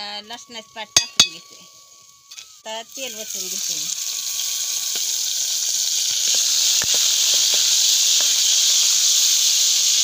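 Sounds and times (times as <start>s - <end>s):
garlic sizzling in hot oil: 0.0s - 10.0s
small oil pops: 6.1s - 8.5s.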